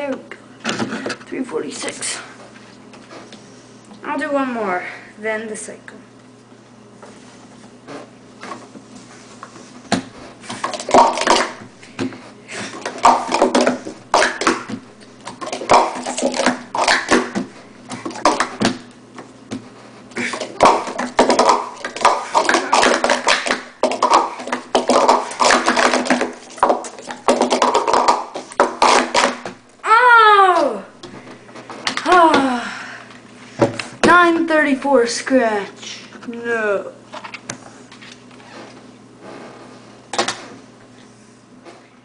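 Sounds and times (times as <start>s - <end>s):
plastic cups clattering: 10.4s - 18.8s, 20.2s - 29.6s.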